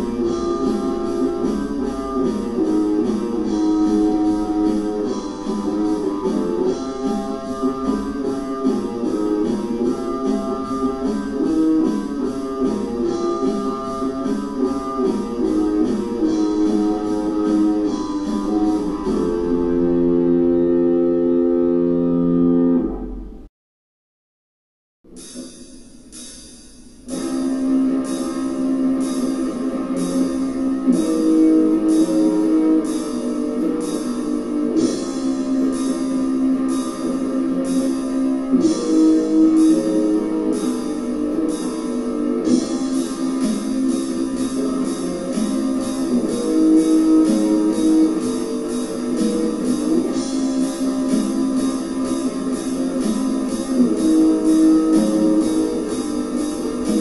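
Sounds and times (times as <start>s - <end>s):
drums: 0.0s - 21.6s, 25.0s - 57.0s
distorted electric guitar chords: 0.0s - 23.5s, 27.0s - 57.0s
cymbal strikes: 25.1s - 30.5s.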